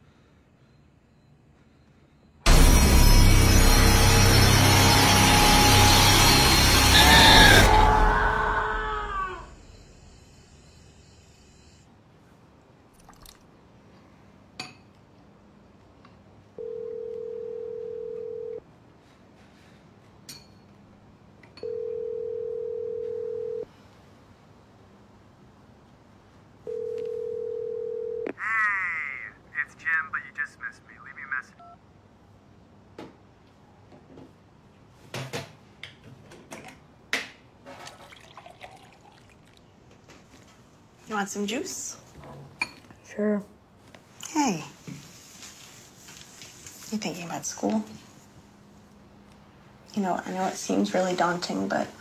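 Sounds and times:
telephone ringback tone: 16.6 - 18.6, 21.6 - 23.7, 26.7 - 28.3.

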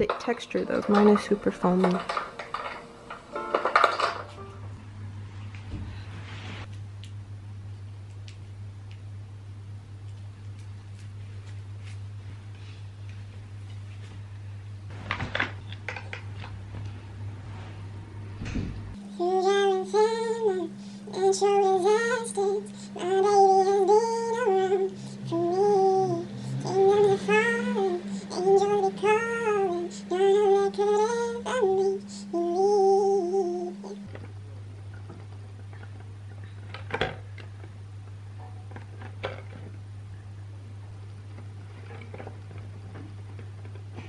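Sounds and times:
steady low hum: 0.0 - 44.0
woman singing slow melody: 19.0 - 34.1.

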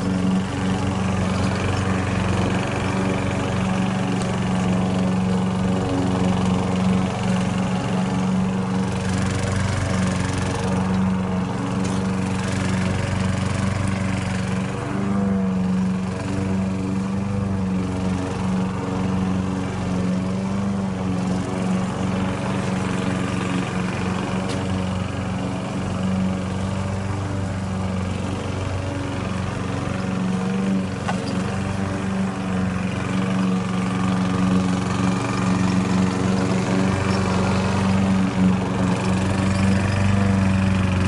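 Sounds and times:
lawn mower engine running: 0.0 - 41.0.

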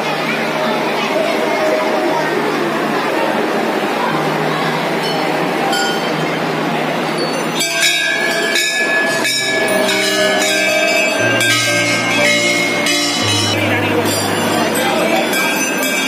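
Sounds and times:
crowd murmur: 0.0 - 16.0
brass bells ringing: 7.1 - 16.0.

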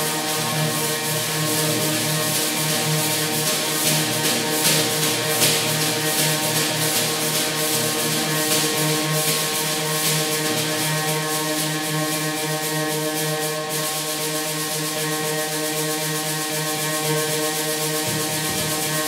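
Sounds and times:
snare drum head scraped: 17.8 - 19.0.

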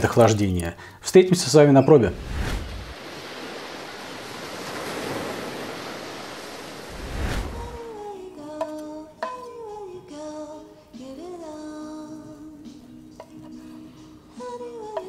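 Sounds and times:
sea surf washing: 2.1 - 8.0.

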